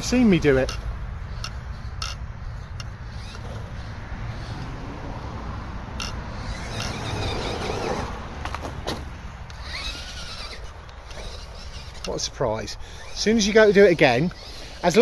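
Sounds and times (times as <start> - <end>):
toy car electric motor: 0.0 - 4.7, 6.0 - 15.0
sharp clicks: 1.4 - 3.5, 6.0 - 7.4, 9.4 - 12.3.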